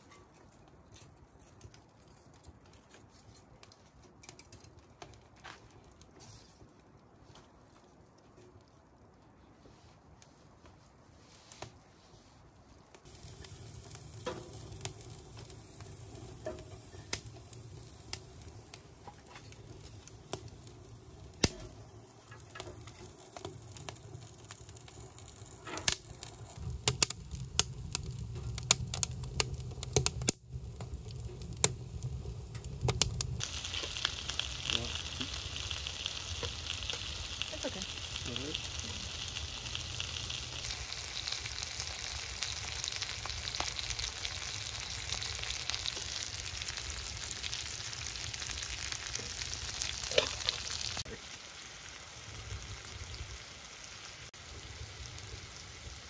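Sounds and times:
wood fire crackling and popping: 0.0 - 56.0
potatoes sizzling in a skillet: 13.0 - 29.4, 31.6 - 56.0.

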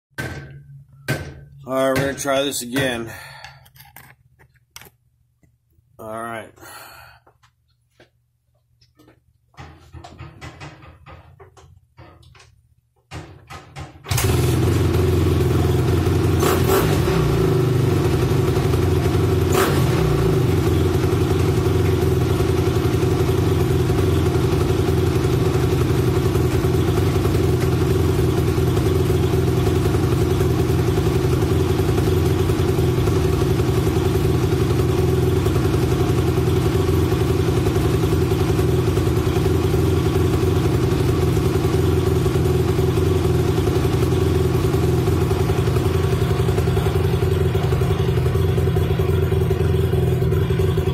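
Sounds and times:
dirt bike kick-started: 13.2 - 17.5
motorcycle engine idling: 14.2 - 50.9.

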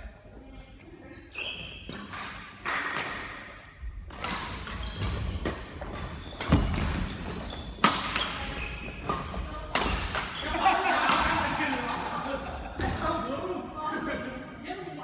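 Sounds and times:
shoes squeaking on wooden floor: 1.1 - 2.1, 4.6 - 9.4
racket striking shuttlecock: 4.1 - 10.4.

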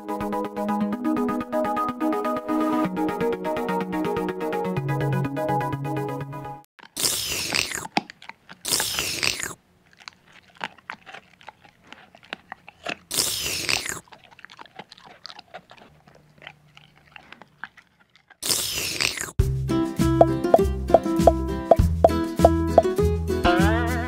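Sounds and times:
cartoon crunchy munching: 6.8 - 19.4.

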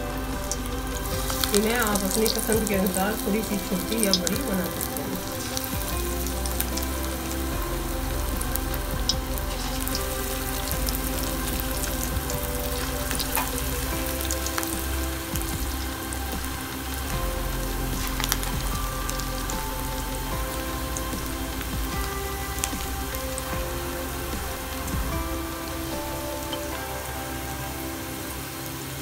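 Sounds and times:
background music: 0.0 - 29.0
food deep-frying in oil: 0.3 - 29.0.

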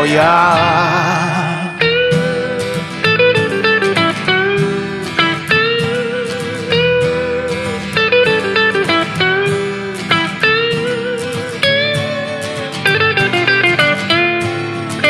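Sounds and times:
band backing: 0.0 - 15.0
lead guitar solo: 0.0 - 15.0.

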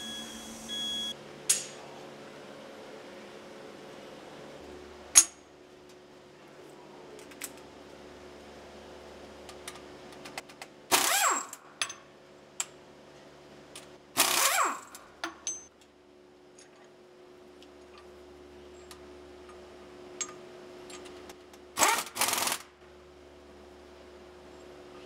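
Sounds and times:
low machine hum: 0.0 - 21.8, 22.7 - 25.0
pneumatic wrench bursts: 10.9 - 11.6, 14.2 - 15.0, 21.8 - 22.6.

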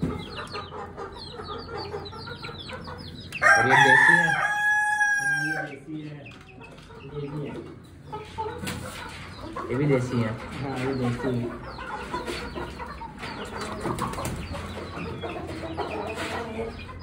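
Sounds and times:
chickens clucking: 0.0 - 17.0
rooster crowing: 3.4 - 5.7.

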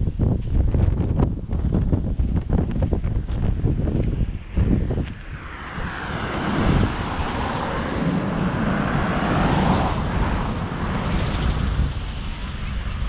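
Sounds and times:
car driving past: 4.4 - 13.0.

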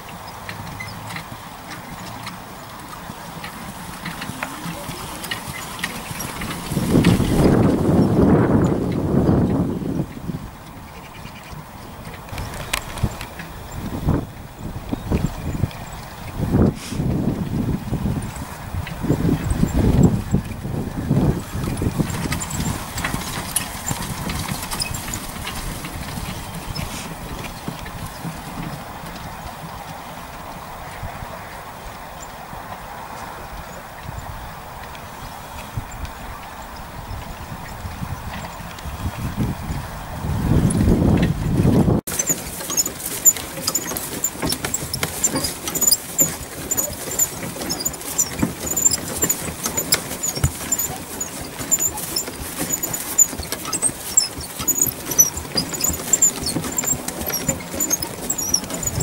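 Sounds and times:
hoofbeats on grass: 0.0 - 59.0
carriage rattling and clicking: 0.2 - 9.7, 10.6 - 16.4, 21.4 - 31.0, 40.5 - 59.0.

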